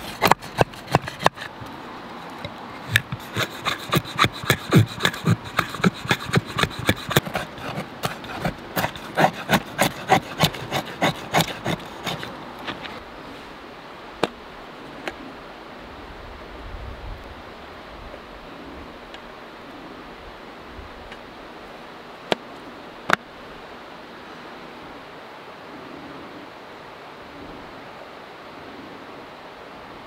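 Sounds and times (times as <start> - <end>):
knife scraping wood: 0.0 - 13.0.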